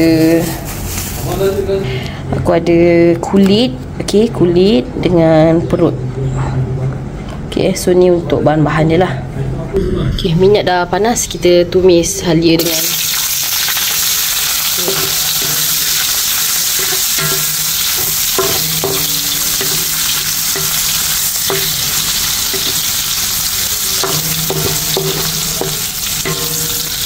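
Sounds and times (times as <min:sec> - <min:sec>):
food sizzling in oil: 0:12.6 - 0:27.0.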